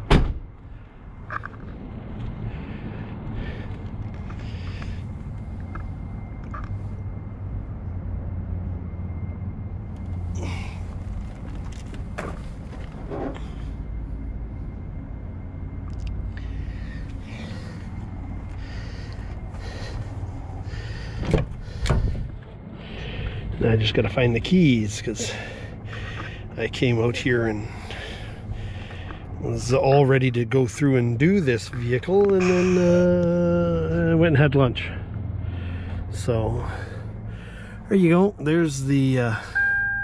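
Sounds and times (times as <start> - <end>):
car engine idling: 8.9 - 39.7.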